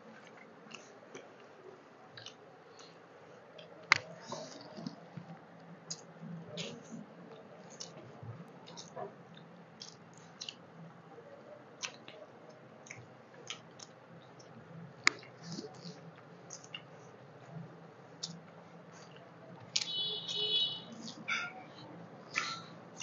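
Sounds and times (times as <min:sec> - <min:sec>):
chewing and lip smacks: 0:02.2 - 0:03.0, 0:03.6 - 0:08.0, 0:08.6 - 0:10.7, 0:11.8 - 0:17.0, 0:18.2 - 0:20.4, 0:22.3 - 0:23.0.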